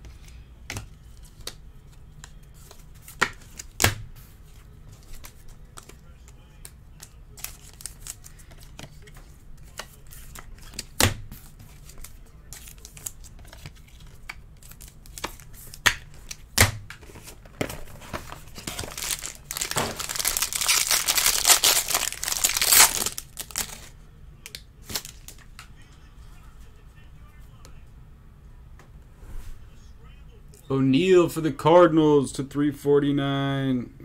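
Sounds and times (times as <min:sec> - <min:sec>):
cards and plastic sleeves handled: 0:00.0 - 0:25.8
foil wrapper ripped open: 0:18.9 - 0:23.8.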